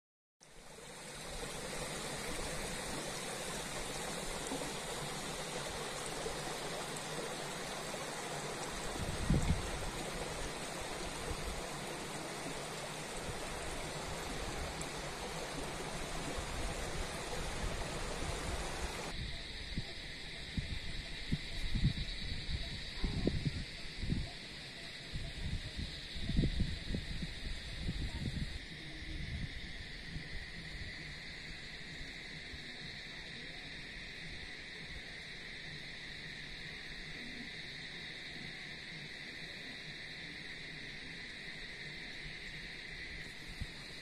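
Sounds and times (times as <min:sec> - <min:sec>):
flowing water rushing: 0:00.4 - 0:19.2.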